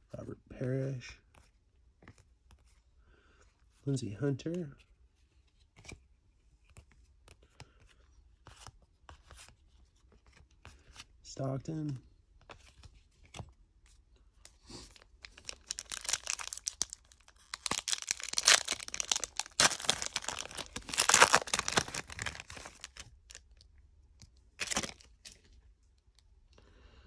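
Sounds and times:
foil wrapper tearing and crinkling: 15.2 - 23.5, 24.6 - 25.1.

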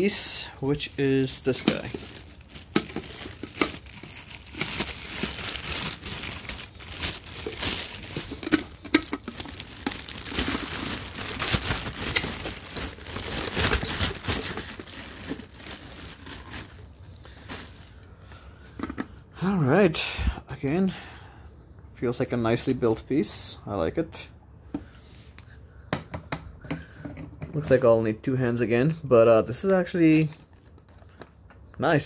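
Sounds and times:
packaging crinkling: 0.9 - 18.1, 30.1 - 31.3.

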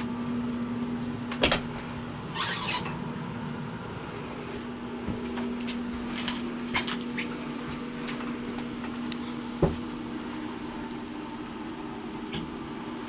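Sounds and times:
steady hum: 0.0 - 13.0
dull knock: 9.6 - 9.8.

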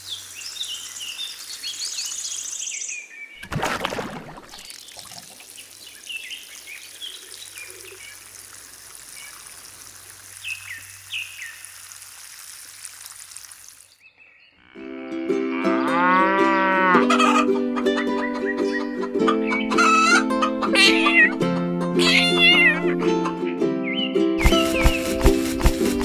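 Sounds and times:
bird chirps: 0.0 - 3.4
faint outdoor ambience: 0.0 - 14.5
cow mooing: 14.6 - 17.1.

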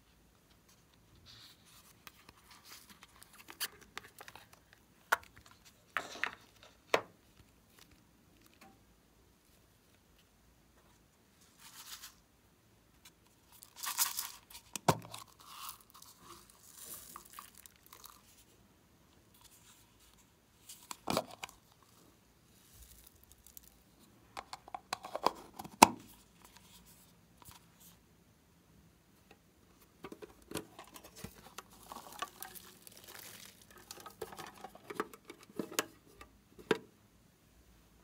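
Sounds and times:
plastic containers rustling: 29.7 - 36.9.

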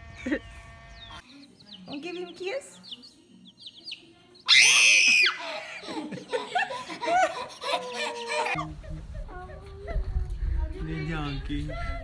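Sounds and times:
baby chicks peeping: 0.0 - 5.2
toddler shrieking laugh: 4.5 - 8.6.

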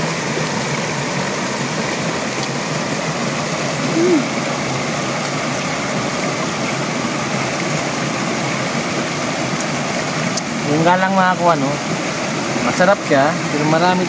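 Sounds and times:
stream water rushing over rocks: 0.0 - 14.0
person humming: 3.8 - 4.4.

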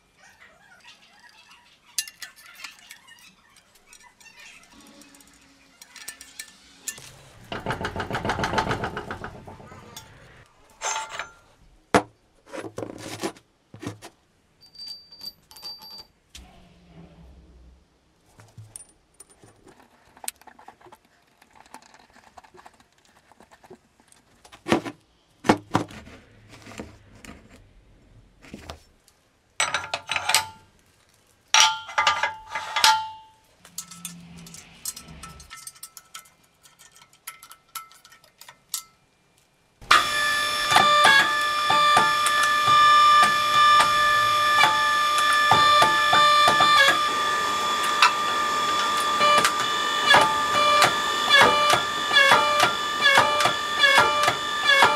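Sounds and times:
metal clinking and knocking: 2.0 - 12.1, 14.6 - 16.2, 29.6 - 30.7, 31.5 - 39.0.

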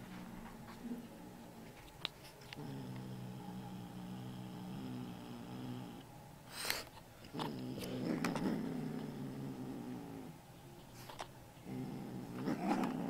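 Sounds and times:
kitten growling: 2.5 - 6.1, 7.3 - 10.4, 11.6 - 13.0.

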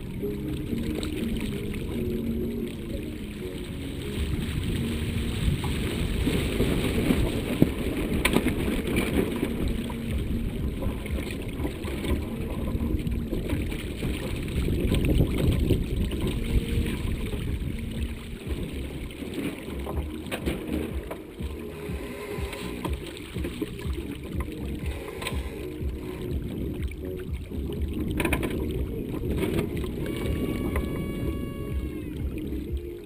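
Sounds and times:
water rushing along hull: 0.0 - 33.0
wind buffeting microphone: 1.9 - 22.1.

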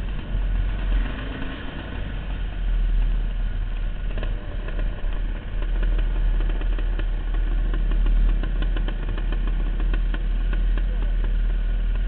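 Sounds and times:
dirt bike engine droning: 0.0 - 12.0
faint rattles and clicks: 3.7 - 12.0.

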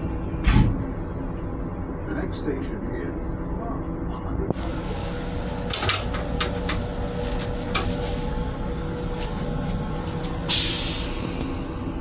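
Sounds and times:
low rumble and hum: 0.0 - 12.0
toilet paper crackling: 4.6 - 10.4
loud hiss: 10.3 - 11.6.

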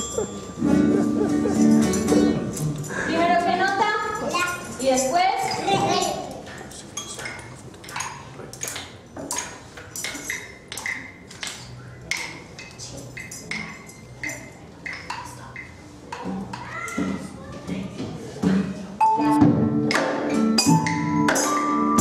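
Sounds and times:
xylophone and metallophone notes: 0.0 - 3.0, 19.0 - 19.7, 20.4 - 22.0.

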